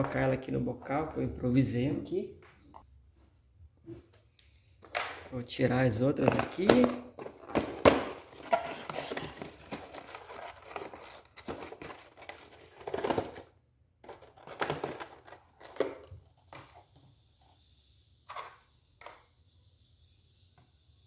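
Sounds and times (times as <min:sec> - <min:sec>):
cardboard box rustling and scraping: 0:08.4 - 0:13.4.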